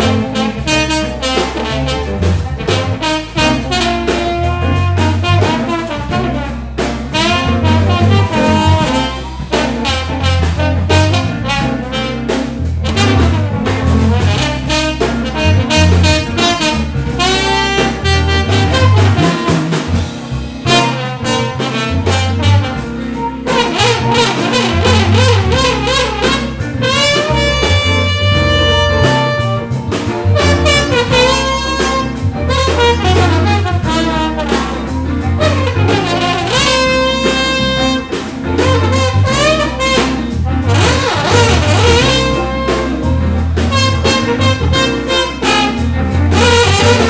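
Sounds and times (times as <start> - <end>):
bass line: 0.0 - 47.0
electric guitar: 0.0 - 47.0
trombone: 0.0 - 47.0.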